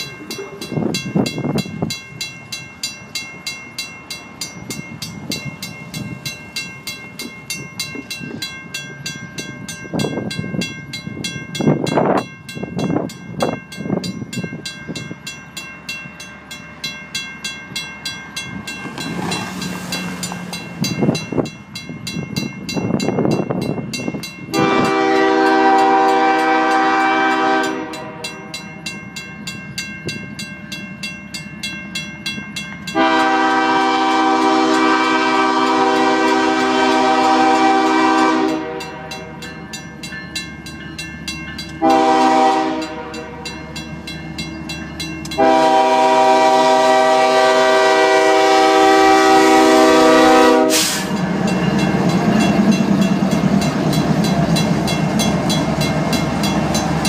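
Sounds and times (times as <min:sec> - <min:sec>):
crossing bell ringing: 0:00.0 - 0:57.0
locomotive air horn: 0:24.5 - 0:28.4, 0:32.9 - 0:39.5, 0:41.8 - 0:43.5, 0:45.4 - 0:51.2.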